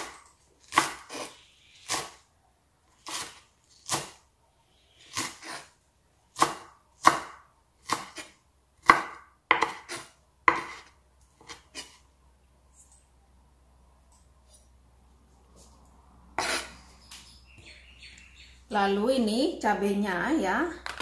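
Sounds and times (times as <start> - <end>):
knife chopping on wooden board: 0.0 - 1.3, 6.4 - 11.8.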